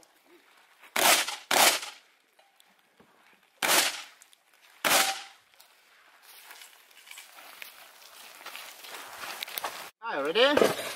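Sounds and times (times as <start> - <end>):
shotgun shots echoing: 1.0 - 2.0, 3.6 - 4.1, 4.8 - 5.3.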